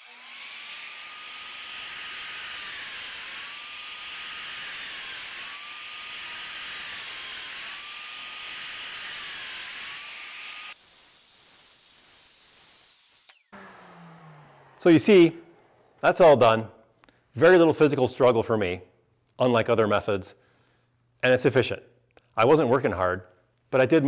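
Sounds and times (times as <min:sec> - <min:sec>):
power joiner motor whine: 0:13.3 - 0:16.4.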